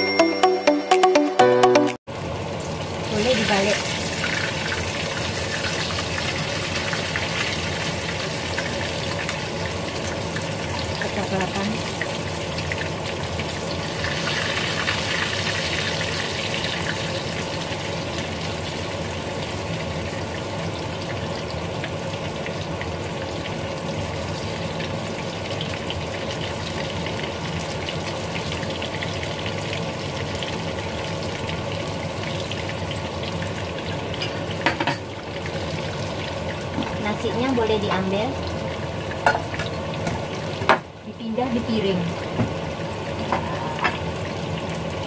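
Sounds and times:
noodles sizzling in a pan: 2.1 - 45.0.

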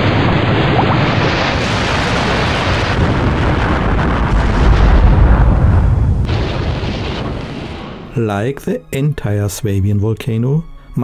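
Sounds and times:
explosion rumbling roar and boom: 0.0 - 8.2.

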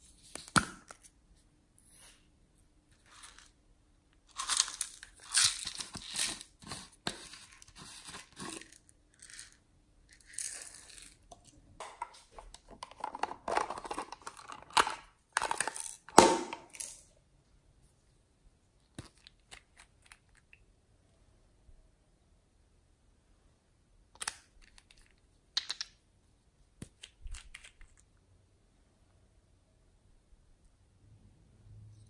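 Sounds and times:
plastic containers crinkling: 10.2 - 17.0.

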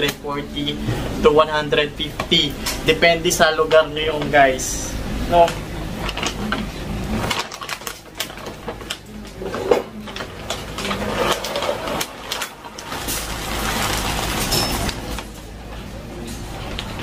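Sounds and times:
plastic bag crinkling: 5.4 - 15.6
dry kibble pouring into container: 10.7 - 14.6.

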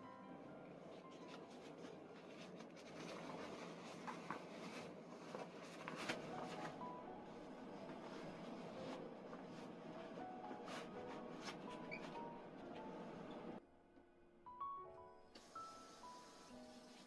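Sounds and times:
rubber gloves rubbing and rustling: 0.9 - 12.5.

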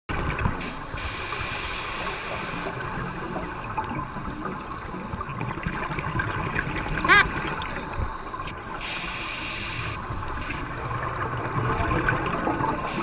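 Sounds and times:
underwater air bubbling and hiss: 0.1 - 13.0
bubbles crackling: 2.6 - 8.8, 10.1 - 13.0.

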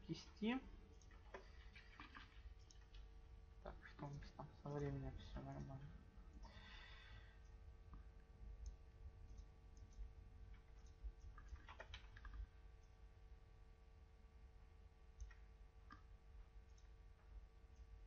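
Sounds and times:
steady low hum: 0.0 - 18.0
computer mouse and keyboard clicks: 0.9 - 3.0, 8.6 - 12.9.

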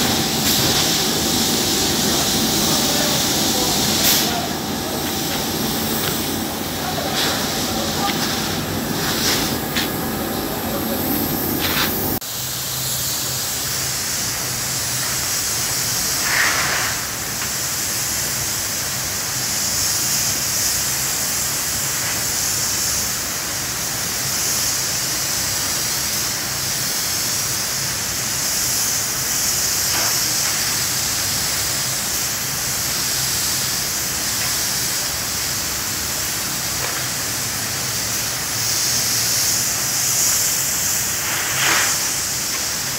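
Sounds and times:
spray gun hissing: 0.0 - 42.9.

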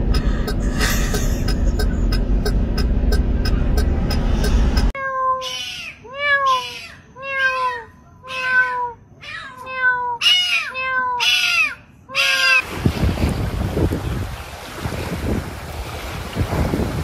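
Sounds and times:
cat meowing: 5.0 - 12.6
wind noise: 12.6 - 17.0.

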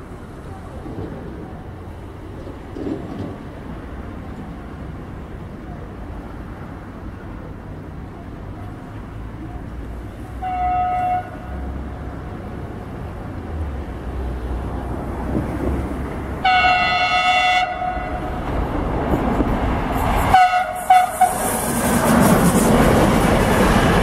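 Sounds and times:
train rumble: 0.0 - 24.0
train horn blasts: 10.3 - 11.6, 16.4 - 18.3, 20.3 - 21.4.

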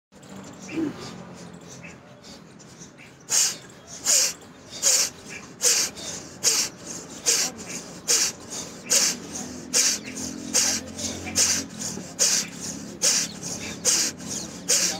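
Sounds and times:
sharp breaths through nose: 0.4 - 14.9.

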